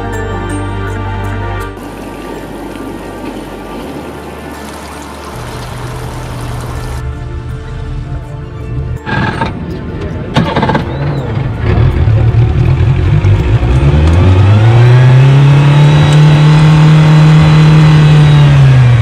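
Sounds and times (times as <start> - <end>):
outboard motor running: 1.8 - 7.1.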